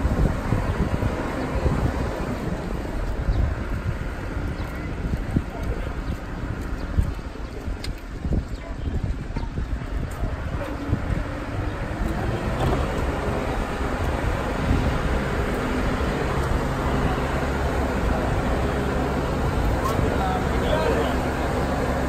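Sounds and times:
boat hoist engine humming: 10.6 - 22.0.

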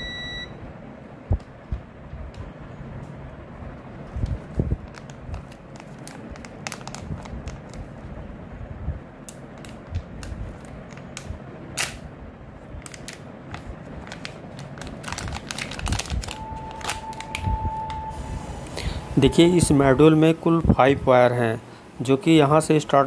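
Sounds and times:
steady single tone: 0.0 - 0.6, 16.4 - 20.4
plastic zip bag crinkling: 4.8 - 7.9, 12.8 - 17.3.

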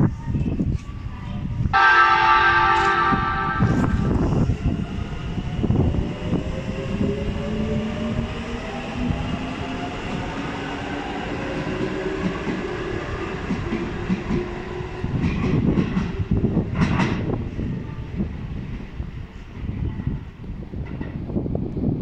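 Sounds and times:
train rumble: 0.0 - 22.0.

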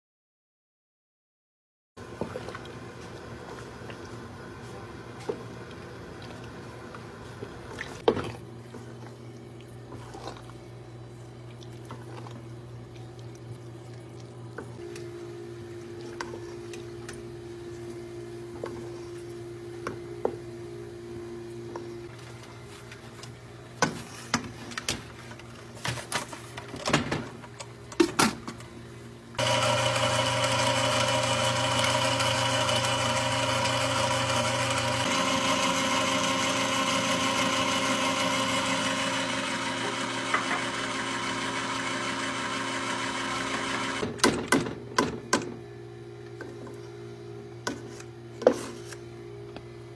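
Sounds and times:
electric mixer motor running: 29.4 - 44.0.

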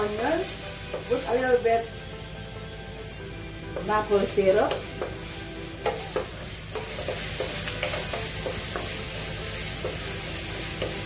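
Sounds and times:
onions sizzling in oil: 0.0 - 11.0
wooden spoon knocking on pan: 3.7 - 11.0.

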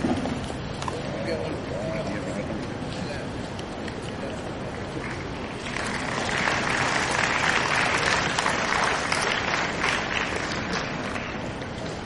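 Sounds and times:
audience applauding: 4.7 - 11.5.

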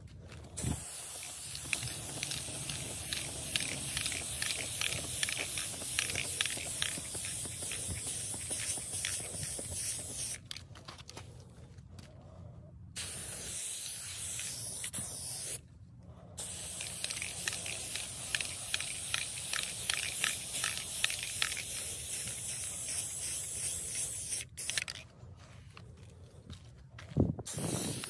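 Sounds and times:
aerosol spray can hissing: 0.6 - 10.4, 13.0 - 15.6, 16.4 - 24.9, 27.5 - 28.0.

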